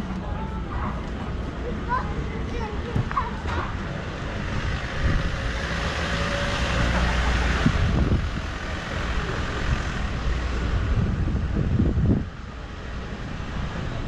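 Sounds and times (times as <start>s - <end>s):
vehicle driving past: 4.0s - 11.2s
steady low rumble: 7.2s - 14.0s.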